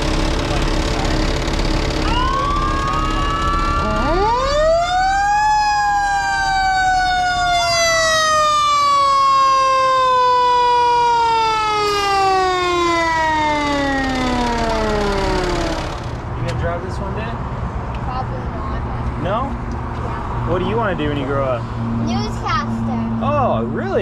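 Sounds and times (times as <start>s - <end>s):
fire engine siren wailing: 2.0s - 16.2s.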